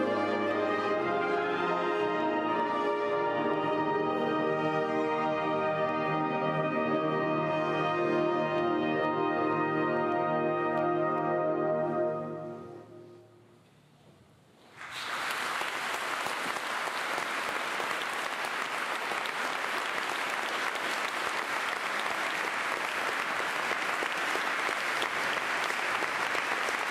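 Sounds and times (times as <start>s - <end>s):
audience applause: 14.7s - 26.9s.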